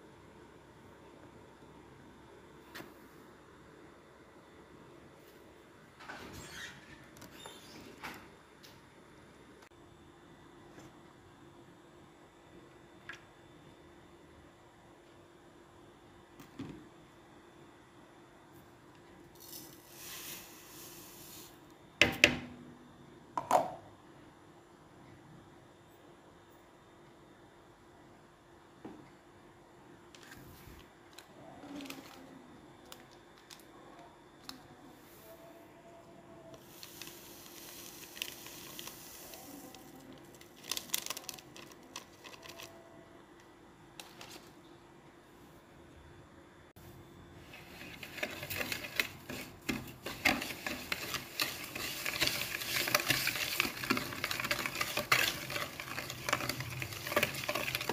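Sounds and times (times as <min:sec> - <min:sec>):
sugar pouring into bowl: 0:19.4 - 0:21.6, 0:36.6 - 0:42.7
sachets crinkling: 0:31.1 - 0:33.7, 0:36.7 - 0:42.9, 0:47.5 - 0:57.9
powder pattering into bowl: 0:36.6 - 0:42.8, 0:47.5 - 0:57.9.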